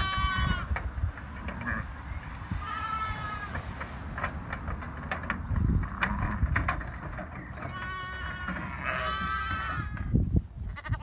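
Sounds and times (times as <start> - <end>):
lambs bleating: 0.0 - 0.7, 2.6 - 3.6, 7.6 - 10.1, 10.7 - 11.0.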